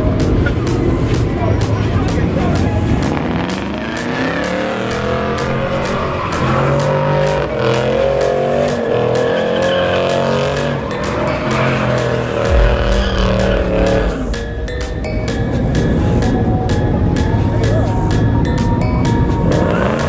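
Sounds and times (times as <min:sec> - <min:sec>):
car engine revving: 0:00.1 - 0:18.4
heavy low rumble: 0:12.5 - 0:17.7.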